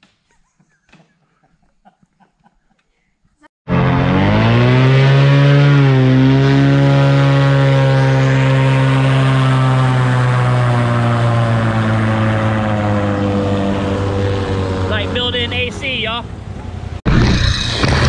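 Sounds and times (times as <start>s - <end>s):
boat engine running: 3.7s - 18.0s.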